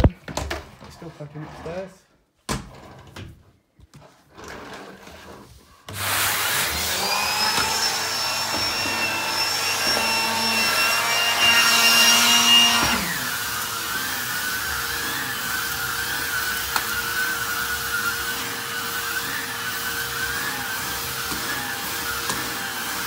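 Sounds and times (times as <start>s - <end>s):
high whine of vacuum cleaner: 5.9s - 23.0s
vacuum cleaner motor running: 5.9s - 23.0s.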